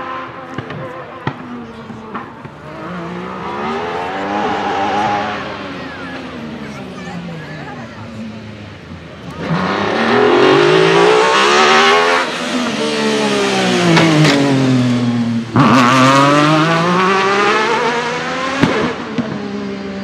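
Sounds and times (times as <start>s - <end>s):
race car engine revving: 0.0s - 20.0s
exhaust pops: 18.6s - 19.6s.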